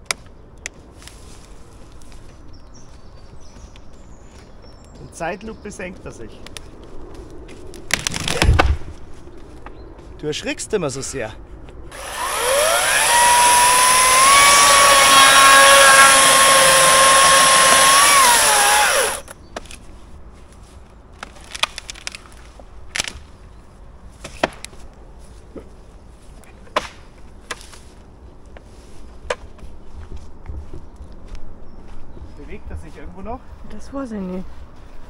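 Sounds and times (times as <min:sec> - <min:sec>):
chainsaw revving: 0:11.9 - 0:19.3
faint clicks and cracks: 0:21.2 - 0:23.2.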